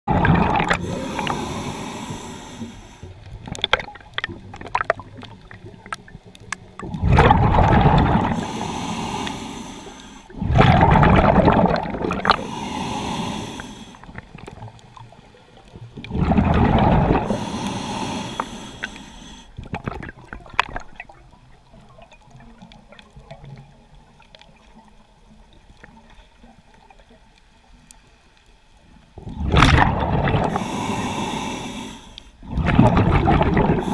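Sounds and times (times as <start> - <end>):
underwater bubbles rushing: 0.1 - 27.3, 29.1 - 31.4, 32.4 - 33.9
underwater breathing: 0.2 - 3.5, 6.8 - 14.5, 16.2 - 19.7, 29.2 - 33.9.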